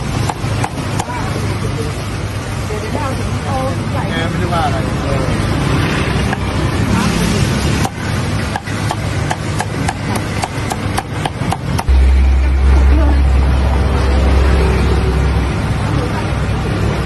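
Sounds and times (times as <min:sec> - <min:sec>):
deep low rumble: 0:11.8 - 0:16.8.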